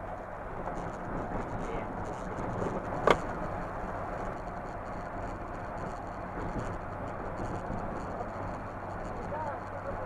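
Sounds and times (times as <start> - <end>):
car engine and road noise: 0.0 - 10.0.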